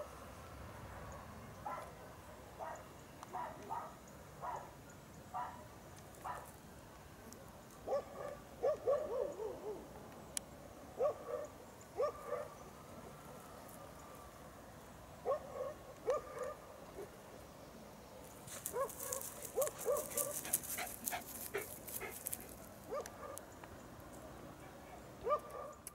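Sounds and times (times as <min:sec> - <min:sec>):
distant dogs barking: 0:01.0 - 0:06.6, 0:07.8 - 0:10.0, 0:10.9 - 0:14.0, 0:15.2 - 0:17.2, 0:18.5 - 0:23.5, 0:24.6 - 0:25.9
crackling rustles: 0:05.9 - 0:08.0, 0:18.2 - 0:23.8.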